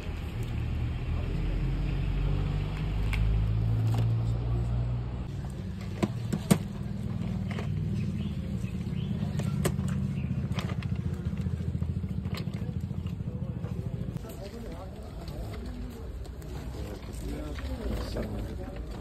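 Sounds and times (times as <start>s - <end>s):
small engine idling: 5.3s - 16.1s.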